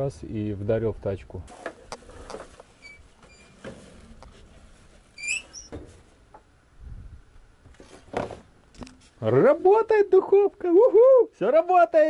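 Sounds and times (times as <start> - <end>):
short high-pitched squeaks: 2.8 - 3.6, 5.2 - 5.8.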